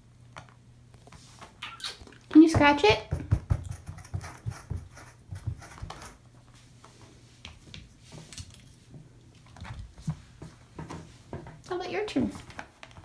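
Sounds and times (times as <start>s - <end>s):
fingernails scratching cardboard: 3.7s - 6.2s.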